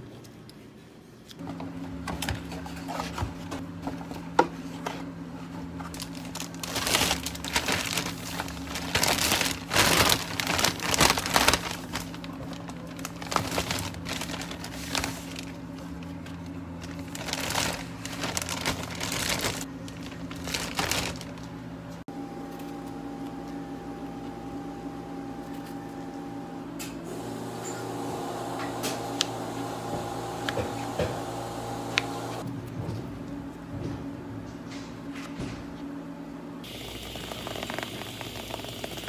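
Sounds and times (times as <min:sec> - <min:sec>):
plastic bag rustling: 0:05.9 - 0:21.5.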